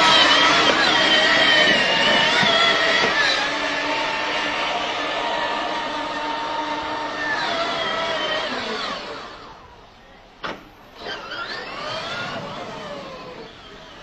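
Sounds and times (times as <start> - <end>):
toy car electric motor whining: 0.0 - 9.7, 11.0 - 14.0.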